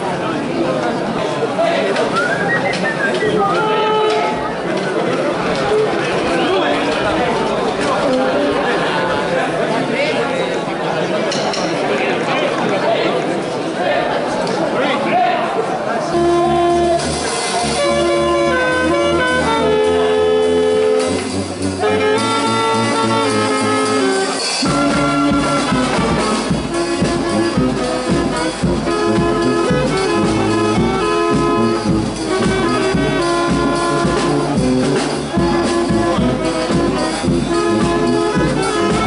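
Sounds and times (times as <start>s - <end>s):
even beat: 2.1s - 4.5s, 24.6s - 39.0s
brass instruments playing: 2.1s - 4.7s, 16.0s - 39.0s.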